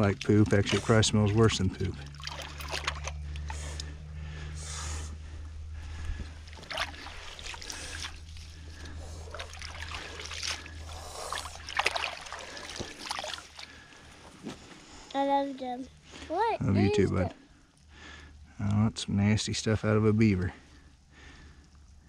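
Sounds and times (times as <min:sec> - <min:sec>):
steady low hum: 0:00.0 - 0:22.0
hands splashing in water: 0:02.1 - 0:03.2, 0:06.4 - 0:13.8.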